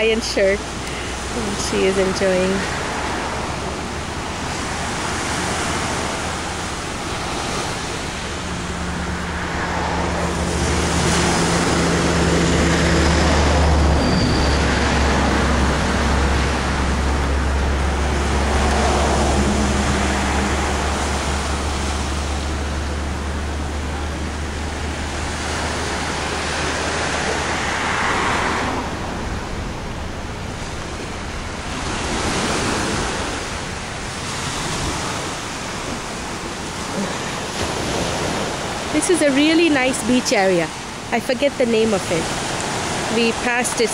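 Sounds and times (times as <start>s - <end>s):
steady low rumble: 0.0s - 43.9s
surf washing up a beach: 0.0s - 43.9s.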